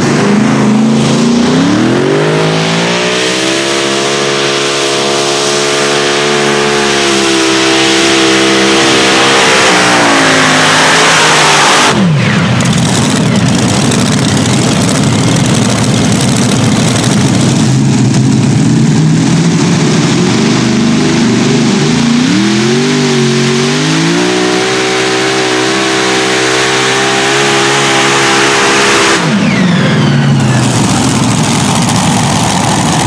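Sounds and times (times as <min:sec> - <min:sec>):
tractor engines roaring: 0:00.0 - 0:33.0.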